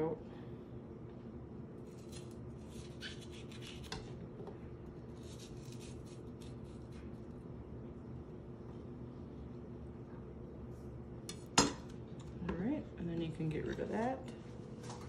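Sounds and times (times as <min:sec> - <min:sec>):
steady low hum: 0:00.0 - 0:15.0
knife cutting on wooden board: 0:02.0 - 0:04.1.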